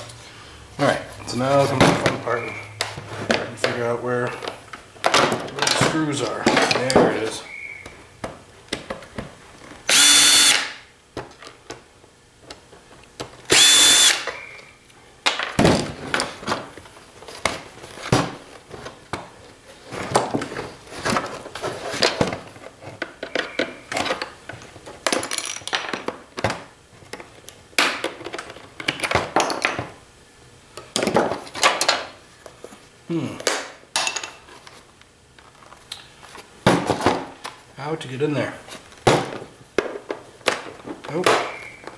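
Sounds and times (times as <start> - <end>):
cordless drill running: 9.9 - 10.8, 13.5 - 14.3.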